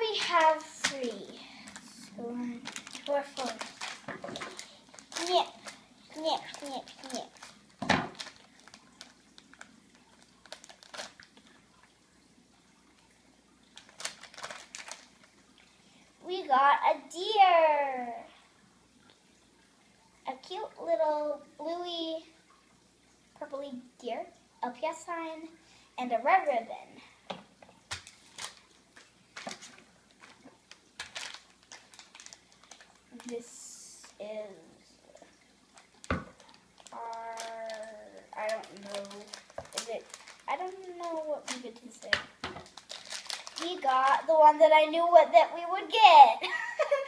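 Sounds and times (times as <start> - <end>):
plastic bag crinkling: 0.0 - 11.7, 13.6 - 15.7, 27.8 - 34.2, 35.7 - 44.6.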